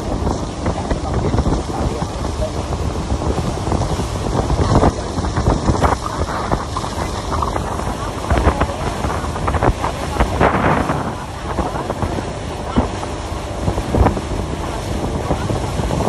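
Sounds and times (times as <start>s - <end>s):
water churning in wake: 0.0s - 16.0s
wind buffeting microphone: 0.0s - 16.0s.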